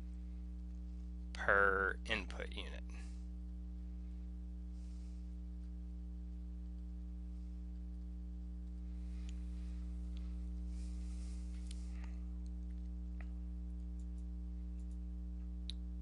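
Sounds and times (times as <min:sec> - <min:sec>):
electrical mains hum: 0:00.0 - 0:16.0
small clicks: 0:11.6 - 0:15.9.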